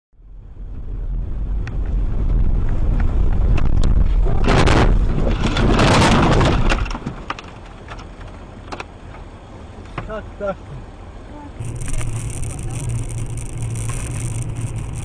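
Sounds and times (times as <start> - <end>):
car engine and road noise: 0.1 - 15.0
loud rushing swells: 11.6 - 15.0
sharp clicks: 11.6 - 15.0.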